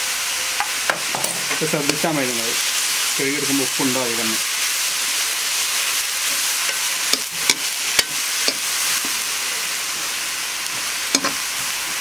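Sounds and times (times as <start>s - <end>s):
food sizzling in a wok: 0.0s - 12.0s
spatula clacking against pan: 6.6s - 8.7s.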